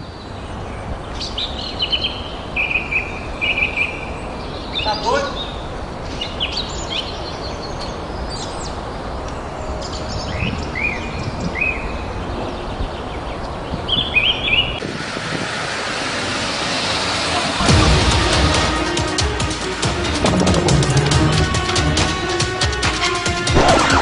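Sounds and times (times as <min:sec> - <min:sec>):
small birds chirping: 0:00.0 - 0:14.8
street noise hiss: 0:00.0 - 0:23.6.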